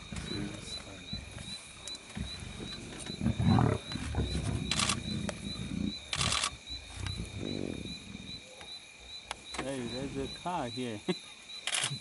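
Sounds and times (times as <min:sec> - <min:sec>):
lions growling: 0:00.0 - 0:08.5.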